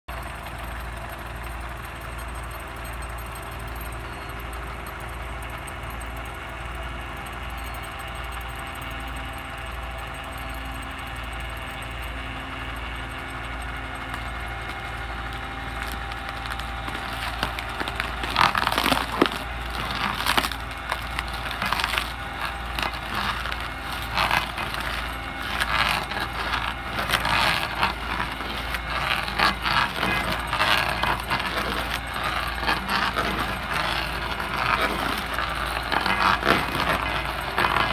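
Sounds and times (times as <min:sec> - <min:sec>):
tractor engine drone: 0:00.1 - 0:37.9
wood cracking and splintering: 0:13.8 - 0:37.9.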